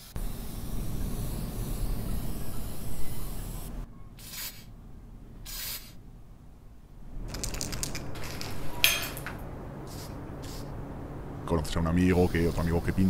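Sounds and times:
spray can hissing: 0:00.0 - 0:04.7, 0:05.4 - 0:06.0, 0:09.9 - 0:10.7.

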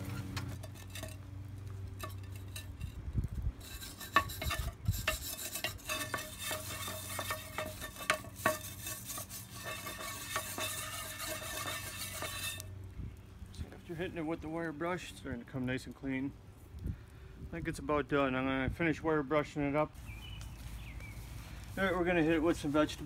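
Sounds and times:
wire brush scraping metal pan: 0:00.0 - 0:01.3, 0:01.9 - 0:12.8, 0:20.7 - 0:23.0.

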